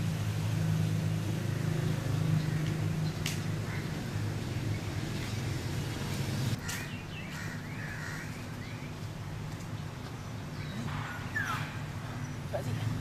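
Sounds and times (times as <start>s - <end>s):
crows cawing: 3.5s - 4.1s, 6.6s - 8.5s.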